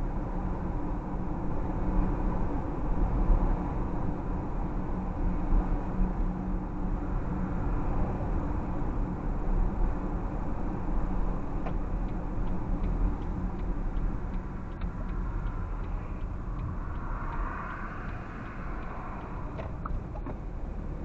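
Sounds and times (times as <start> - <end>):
car road and engine rumble: 0.0 - 21.0
turn signal ticking: 11.6 - 21.0.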